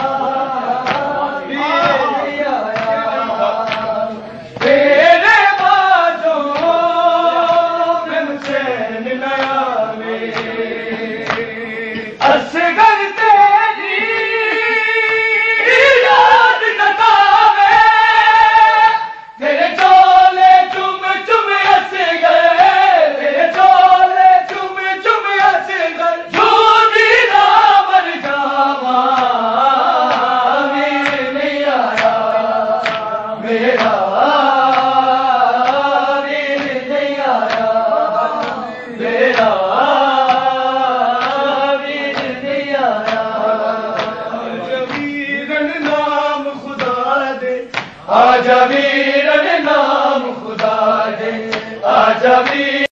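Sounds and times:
men chanting in unison: 0:00.0 - 0:53.0.

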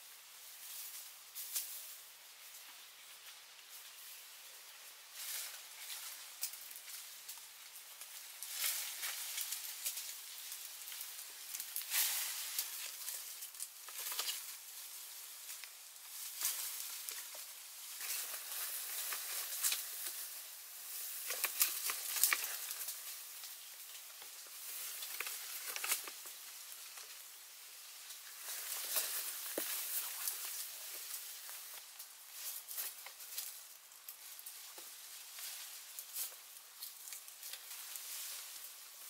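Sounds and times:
leaves and twigs rustling: 0:00.0 - 0:39.0
twigs snapping: 0:11.4 - 0:14.6, 0:21.2 - 0:27.1, 0:28.2 - 0:35.0.

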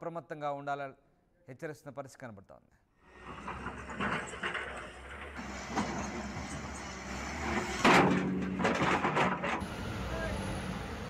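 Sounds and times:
truck and excavator engines: 0:03.0 - 0:11.0.

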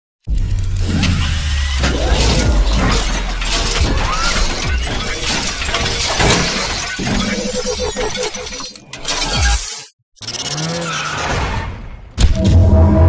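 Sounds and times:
heavy low rumble: 0:00.4 - 0:04.8
crackling and shattering: 0:00.9 - 0:07.6.

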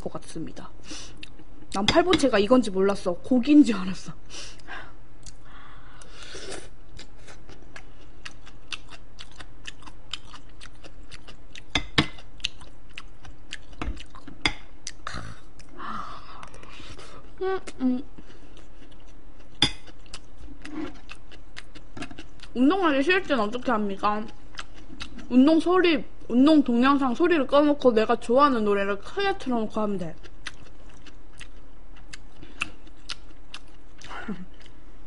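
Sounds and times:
low electrical hum: 0:00.0 - 0:35.0
wet chewing and mouth clicks: 0:06.9 - 0:15.8, 0:17.6 - 0:22.6, 0:24.2 - 0:25.3, 0:30.2 - 0:34.8.

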